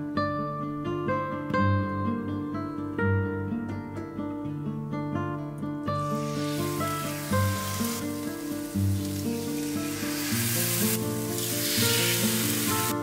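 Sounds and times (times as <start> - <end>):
chicken sizzling in hot oil: 6.0 - 13.0.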